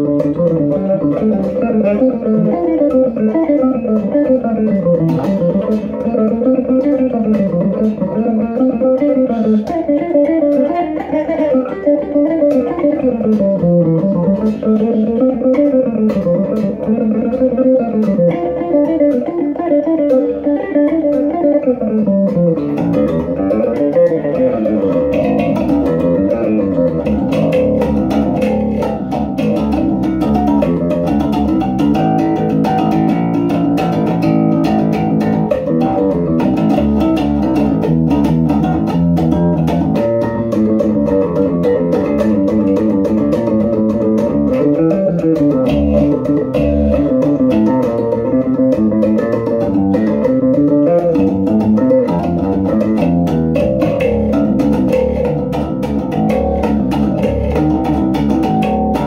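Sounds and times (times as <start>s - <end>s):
electric bass guitar solo: 0.0s - 59.0s.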